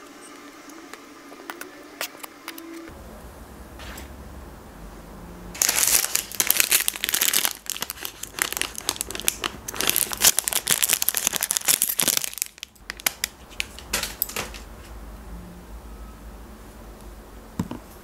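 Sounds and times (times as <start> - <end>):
wrapper crinkling and tearing: 5.6 - 14.6.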